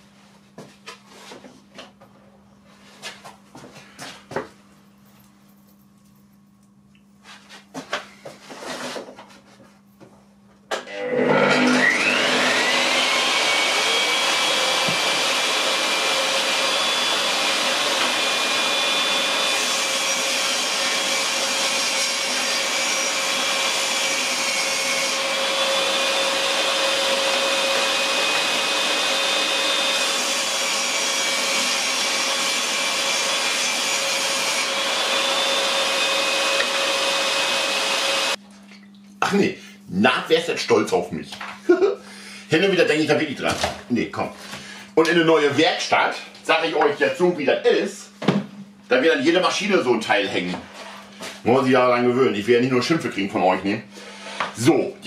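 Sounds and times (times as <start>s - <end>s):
table saw whining: 10.7s - 38.4s.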